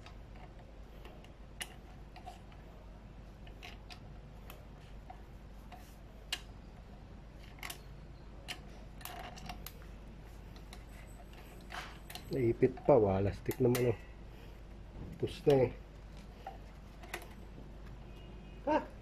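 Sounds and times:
small metal parts clicking: 0:03.4 - 0:09.9.

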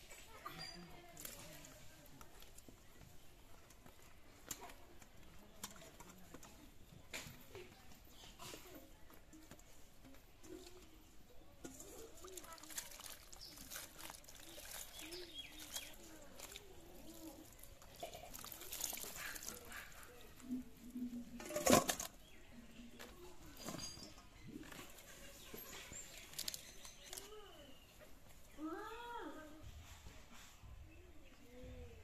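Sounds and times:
wet squelches in water: 0:11.6 - 0:21.0, 0:25.9 - 0:27.2.

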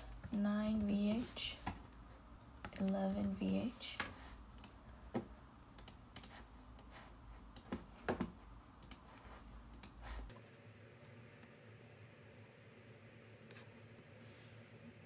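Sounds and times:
low steady hum: 0:00.0 - 0:15.0
computer mouse and keyboard clicks: 0:04.0 - 0:04.8, 0:05.8 - 0:07.9, 0:08.8 - 0:10.0.

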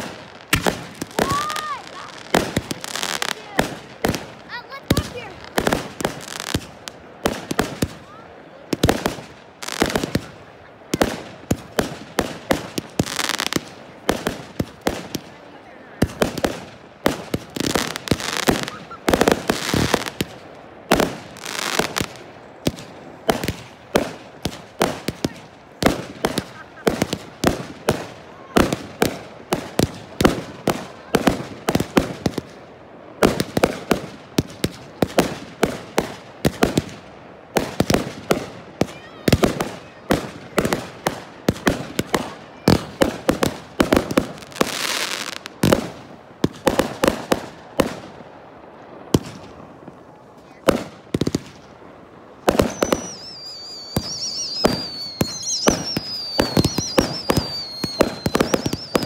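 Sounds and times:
firework hiss: 0:52.4 - 0:59.0
firework whistle falling in pitch: 0:52.6 - 0:59.0.

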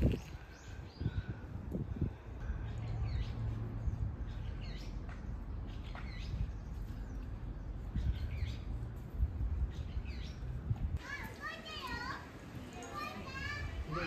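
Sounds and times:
steady low rumble: 0:00.0 - 0:11.0
small birds chirping: 0:00.0 - 0:14.0.

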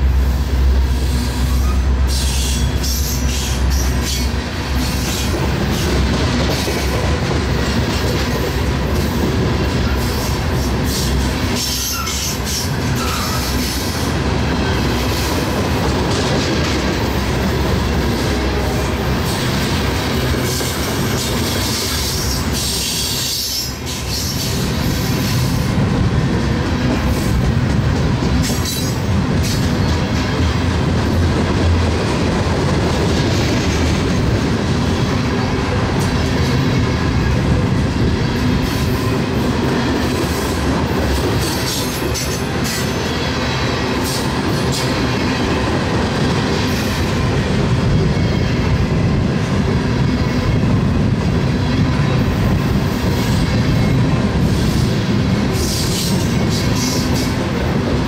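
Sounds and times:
freight train wheels rumbling: 0:00.0 - 0:58.0
train wheel squeal: 0:00.9 - 0:06.0, 0:09.7 - 0:15.3, 0:20.4 - 0:25.7, 0:28.4 - 0:30.4, 0:41.4 - 0:45.6, 0:52.8 - 0:57.4.

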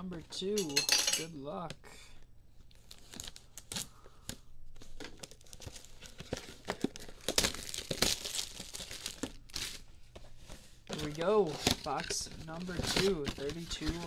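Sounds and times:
plastic shrink-wrap crinkling: 0:02.7 - 0:09.9, 0:10.9 - 0:14.0.

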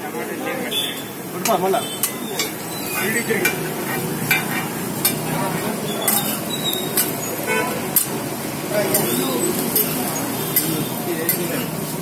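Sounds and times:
metal spatula scraping griddle: 0:02.0 - 0:05.3, 0:05.9 - 0:08.2, 0:08.8 - 0:12.0.

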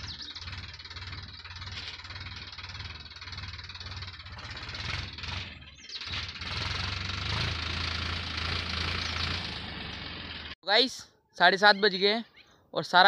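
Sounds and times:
tractor diesel engine running: 0:00.0 - 0:10.6.

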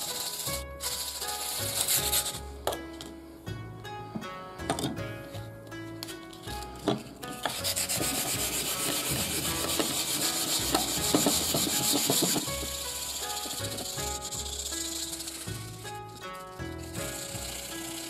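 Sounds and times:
sandpaper rasping on steel blade: 0:00.0 - 0:02.4, 0:07.4 - 0:18.0
background music: 0:00.0 - 0:18.0.

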